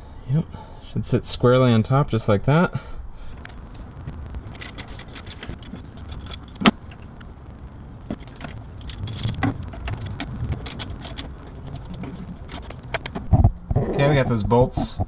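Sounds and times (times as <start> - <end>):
metal clinking: 4.5 - 7.1, 8.1 - 13.1.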